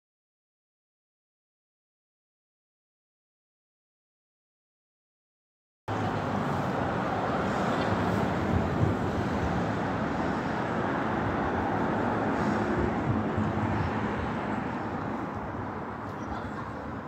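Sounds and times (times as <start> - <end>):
rumbling vehicle noise: 5.9 - 17.0.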